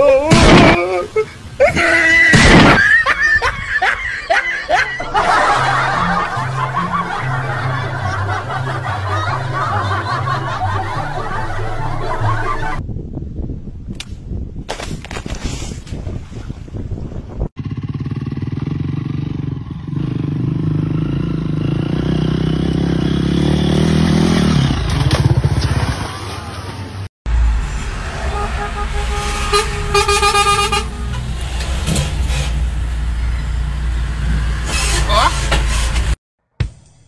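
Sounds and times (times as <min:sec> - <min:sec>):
vehicle engines rumbling: 0:02.8 - 0:12.8, 0:17.6 - 0:36.2
car horn honking: 0:28.0 - 0:31.5.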